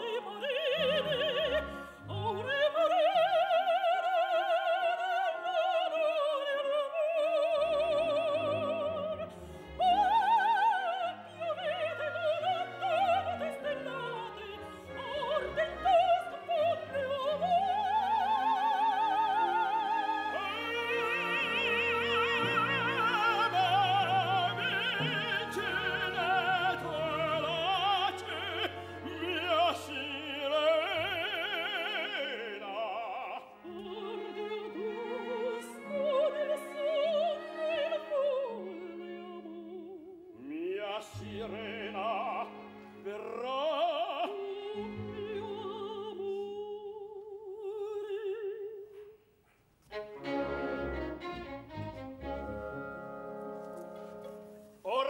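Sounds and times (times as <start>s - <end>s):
orchestra playing: 0.0s - 32.8s, 49.9s - 55.0s
operatic duet singing: 0.0s - 49.2s.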